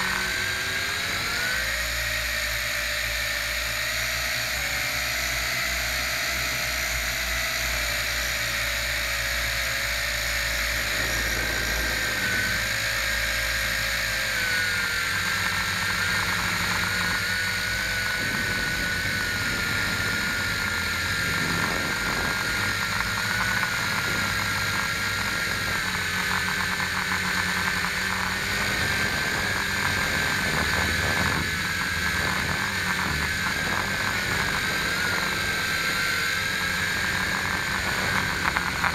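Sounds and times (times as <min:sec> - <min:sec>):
drone motors whining: 0:00.0 - 0:38.9.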